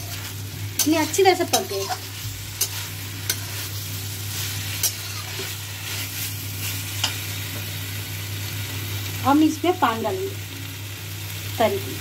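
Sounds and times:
steady low hum: 0.0 - 9.4
food sizzling in oil: 0.0 - 12.0.

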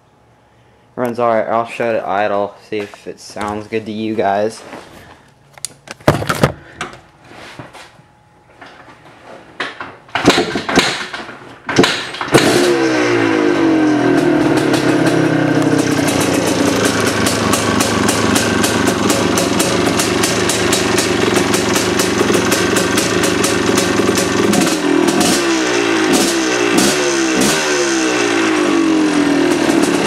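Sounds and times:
motorcycle engine starting and idling: 9.7 - 30.0.

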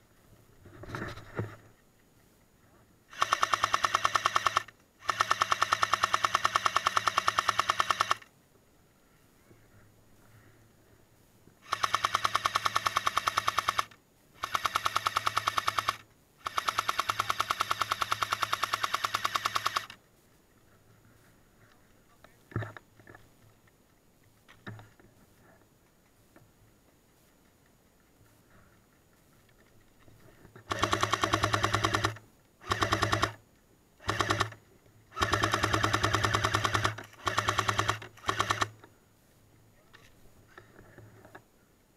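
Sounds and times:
airsoft machine gun firing: 3.1 - 8.3, 11.6 - 20.0, 30.7 - 33.4, 34.0 - 38.8.

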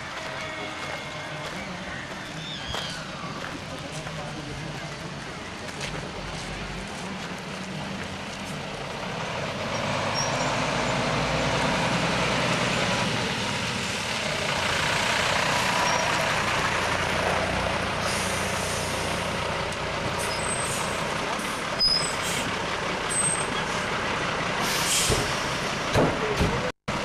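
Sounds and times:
diesel truck engines driving past: 0.0 - 27.0.

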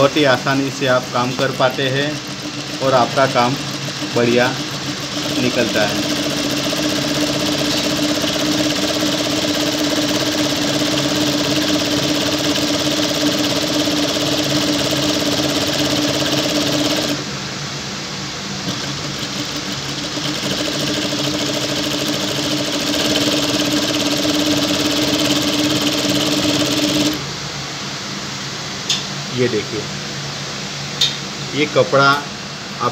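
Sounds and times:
sewing machine running: 0.0 - 17.3, 18.6 - 27.3.

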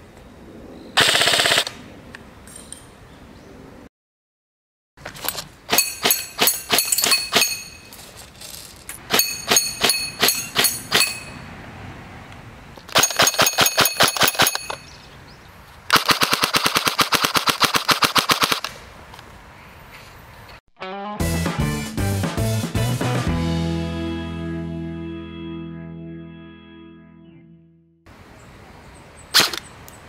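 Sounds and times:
airsoft gun firing: 1.0 - 1.8, 15.9 - 18.7
pellets ringing off steel targets: 5.7 - 8.0, 9.1 - 11.4.

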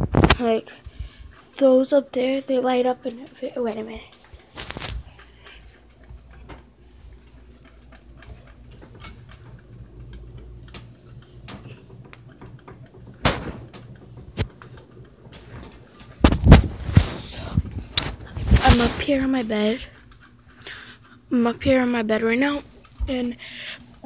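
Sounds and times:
knocks and rubbing on bunk bed: 10.8 - 19.4
sharp thumps: 11.5 - 14.7, 15.3 - 19.3.

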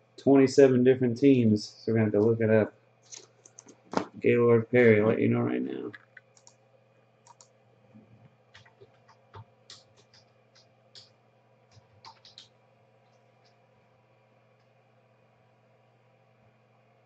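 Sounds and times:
low hum: 4.0 - 6.2
keyboard key clicks: 12.0 - 12.5.

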